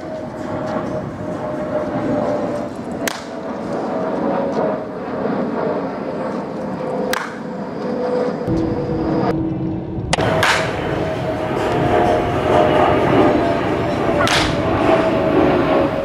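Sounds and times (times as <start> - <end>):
steady loud drone: 0.0 - 16.0
wooden bat cracking against ball: 3.0 - 3.4, 7.1 - 7.5, 10.4 - 10.8, 14.2 - 14.6.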